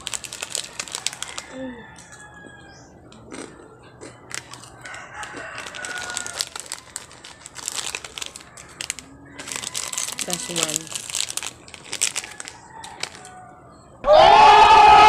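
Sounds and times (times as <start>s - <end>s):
plastic wrapper crinkling: 0.0s - 2.2s, 4.2s - 13.4s
rooster crowing: 0.7s - 2.9s, 4.8s - 7.0s, 8.4s - 10.6s, 12.2s - 15.0s.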